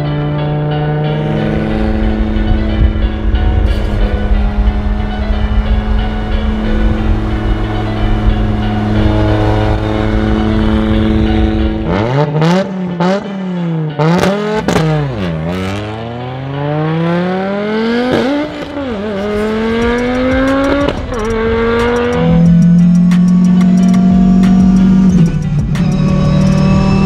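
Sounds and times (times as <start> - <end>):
rally car engine revving: 0.0 - 27.0
exhaust cracks: 18.0 - 27.0.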